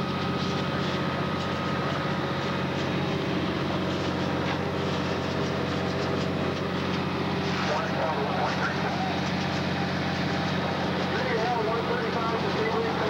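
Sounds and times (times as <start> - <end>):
constant rushing noise: 0.0 - 13.0
fire truck engines droning: 0.0 - 13.0.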